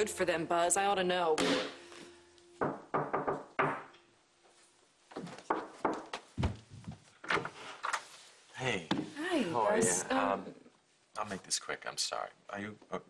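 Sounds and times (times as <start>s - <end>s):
knocking on wooden door: 2.6s - 3.9s
footsteps: 4.4s - 8.2s.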